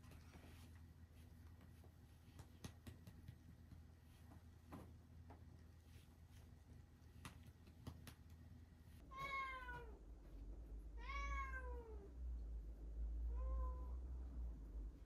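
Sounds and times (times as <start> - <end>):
cat meowing: 9.1 - 10.0, 11.0 - 12.1.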